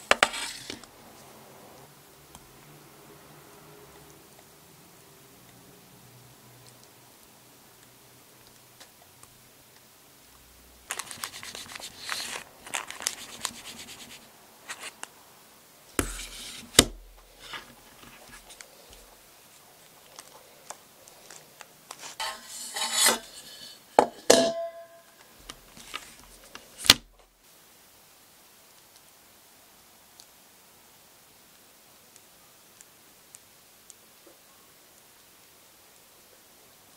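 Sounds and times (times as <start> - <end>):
parchment paper crinkling: 0.1 - 0.8, 10.9 - 15.1, 16.0 - 23.8, 25.5 - 27.0
metal pan knocking on counter: 24.0 - 25.0.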